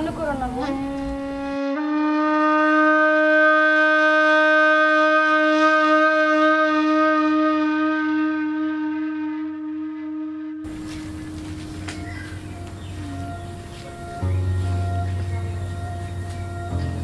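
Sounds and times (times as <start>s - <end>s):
held reedy wind instrument note: 0.0s - 17.0s.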